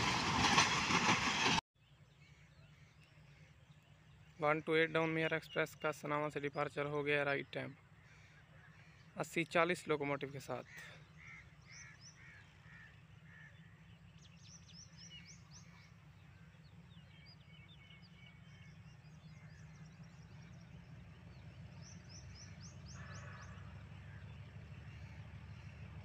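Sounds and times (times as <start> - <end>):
distant diesel locomotive rumble: 0.0 - 26.0
small birds chirping: 10.7 - 26.0.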